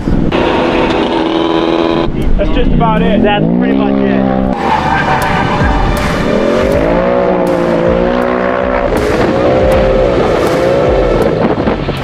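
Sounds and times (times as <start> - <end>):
buggy engine revving hard: 0.2 - 2.2, 3.2 - 11.8.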